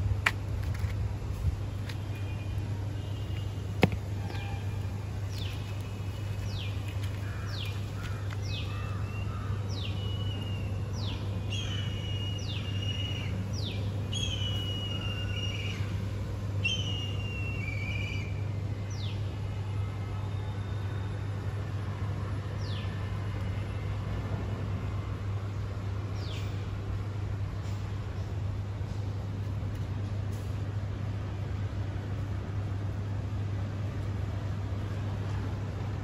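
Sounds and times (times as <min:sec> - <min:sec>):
steady low hum: 0:00.0 - 0:36.0
bird whistling call: 0:16.7 - 0:18.4.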